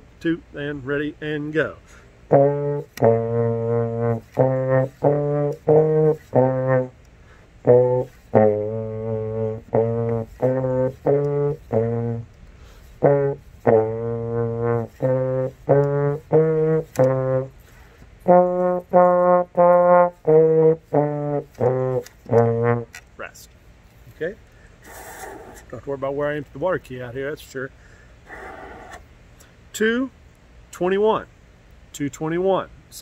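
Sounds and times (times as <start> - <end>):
trombone playing: 2.2 - 23.3.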